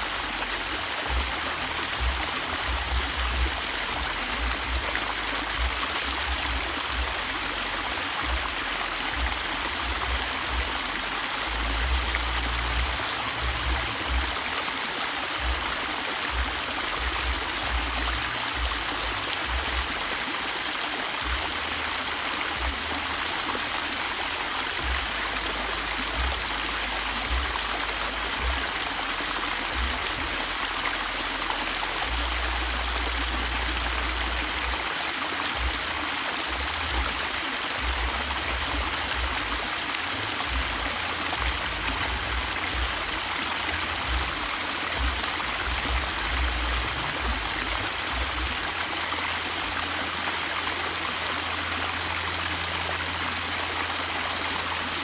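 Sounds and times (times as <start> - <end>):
waterfall rushing and splashing: 0.0 - 55.0.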